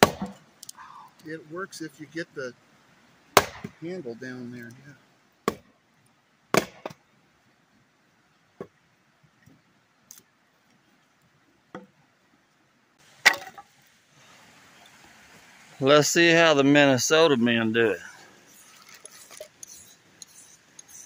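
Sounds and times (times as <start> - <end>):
hatchet chopping firewood: 0.0 - 0.7, 3.4 - 3.8, 5.4 - 5.7, 6.5 - 7.0, 13.2 - 13.7.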